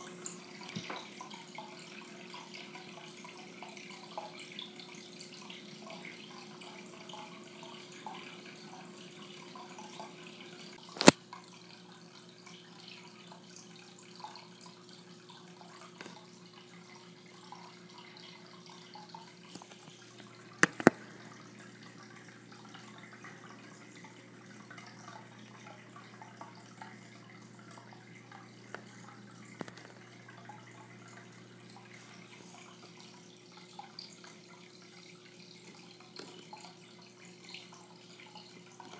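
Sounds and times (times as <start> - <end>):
aquarium filter trickling water: 0.0 - 38.9.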